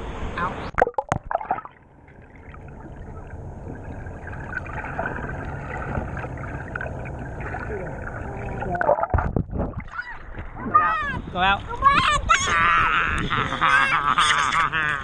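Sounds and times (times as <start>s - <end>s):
water splashes: 0.7s - 10.8s
muffled underwater rumble and hiss: 1.8s - 9.3s.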